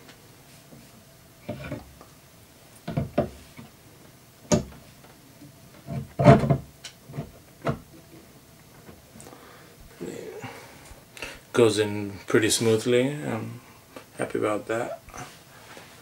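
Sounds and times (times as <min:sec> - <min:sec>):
statue parts knocking and scraping: 0:01.4 - 0:01.9, 0:05.7 - 0:09.0.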